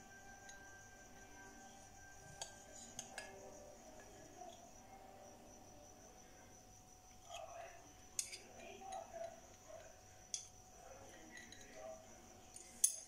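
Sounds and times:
spoon clinking on glass: 8.2 - 10.5, 11.1 - 11.9.

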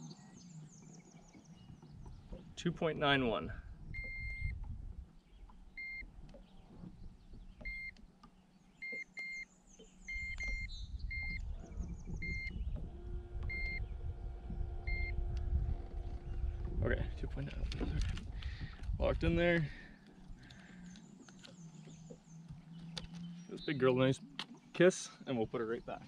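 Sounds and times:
low rumble: 0.0 - 5.1, 10.1 - 20.7
steady low hum: 0.0 - 8.1, 8.8 - 25.9
short high-pitched beeps: 4.0 - 4.6, 5.8 - 6.0, 8.8 - 9.5, 10.1 - 11.4, 12.2 - 12.6, 13.5 - 13.8, 14.9 - 15.1.

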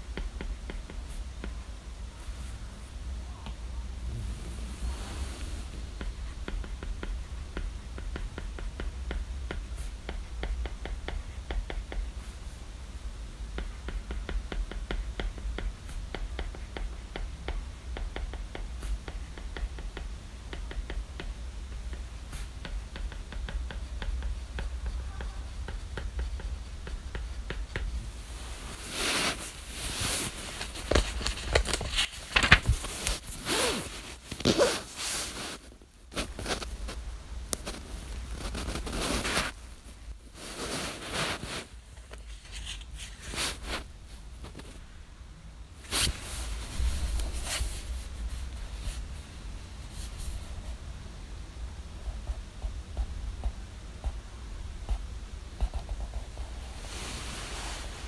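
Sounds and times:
paper pages rustling and turning: 26.8 - 37.0, 37.6 - 39.8, 40.4 - 44.8.

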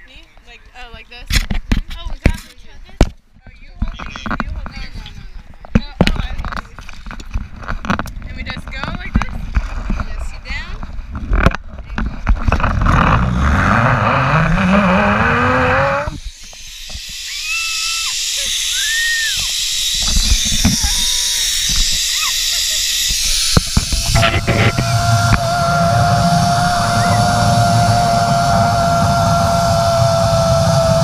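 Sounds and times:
zipline pulleys whining: 12.6 - 31.0
wind rushing over microphone: 23.1 - 31.0.

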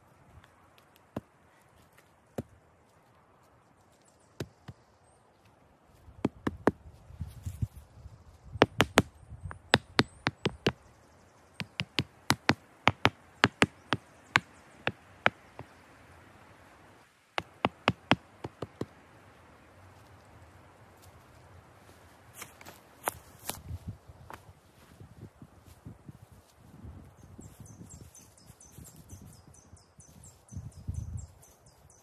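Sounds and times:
tool knocking on wood: 11.6 - 15.0.

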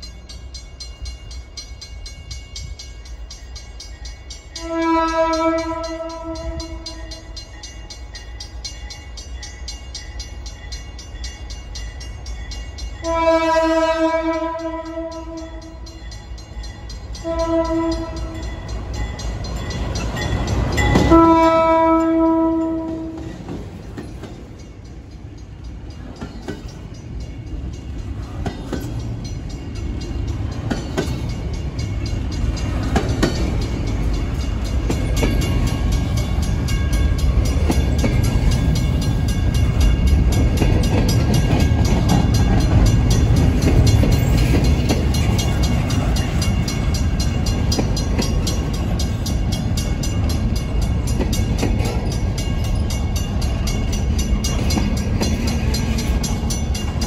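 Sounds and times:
locomotive air horn: 4.6 - 7.0, 13.0 - 15.8, 17.2 - 18.4, 21.0 - 23.2
freight cars rumbling and clattering: 22.6 - 57.0.

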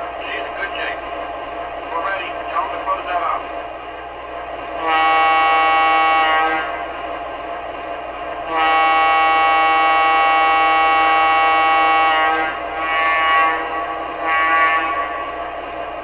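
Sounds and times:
locomotive running sound: 0.0 - 16.0
model locomotive air horn: 4.8 - 6.8, 8.4 - 15.4.

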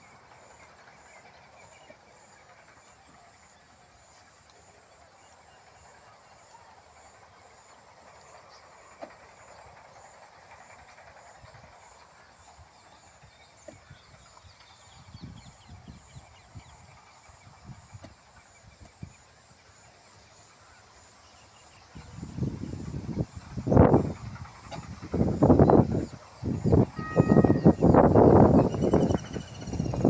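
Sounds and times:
wind buffeting microphone: 12.5 - 19.3, 21.8 - 30.0
high-pitched insect call: 14.1 - 30.0.

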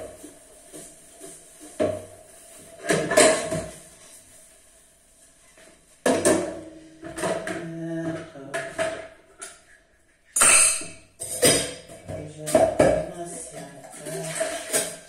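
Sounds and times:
metal kitchenware clinking: 10.4 - 15.0.

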